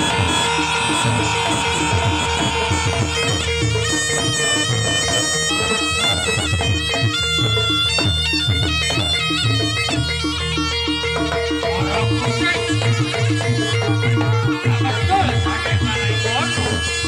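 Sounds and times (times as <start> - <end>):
reed horn melody: 0.0 - 6.3
hand drums beating: 0.0 - 17.0.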